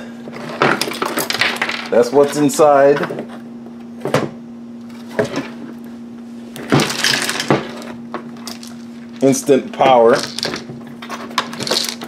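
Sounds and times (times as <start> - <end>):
plastic parts knocking and rattling: 0.4 - 2.1, 6.6 - 7.8, 8.4 - 12.0.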